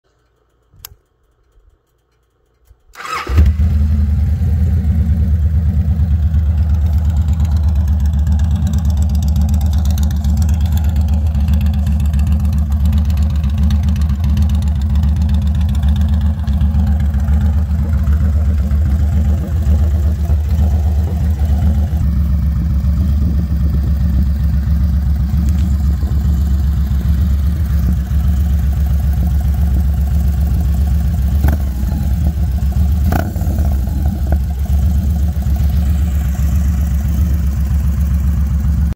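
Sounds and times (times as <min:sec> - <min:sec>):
motorcycle engine idling: 0:03.0 - 0:38.9.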